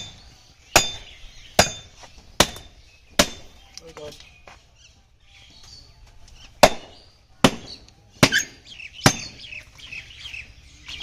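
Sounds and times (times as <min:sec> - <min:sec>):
cleaver chopping on wooden block: 0:00.7 - 0:03.5, 0:06.6 - 0:09.4.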